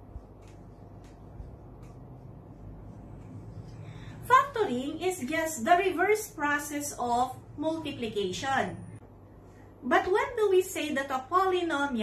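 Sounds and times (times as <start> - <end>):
marker scratching on whiteboard: 0.0 - 6.9.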